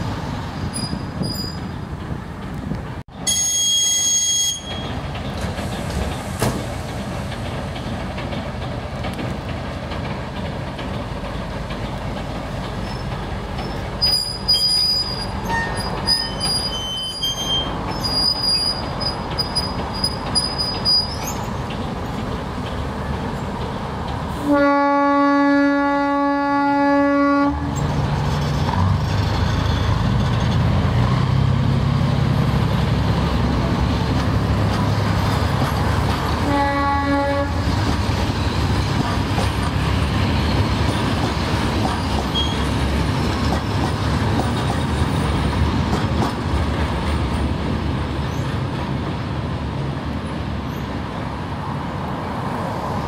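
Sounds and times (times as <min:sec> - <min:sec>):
train wheels rolling: 0:00.0 - 0:25.4, 0:27.6 - 0:53.0
locomotive horn blast: 0:24.4 - 0:27.8, 0:36.4 - 0:37.7.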